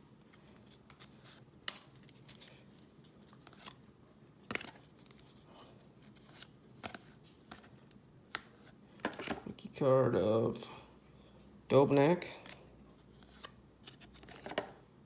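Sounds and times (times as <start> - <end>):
trading cards flicked by hand: 8.3 - 9.4.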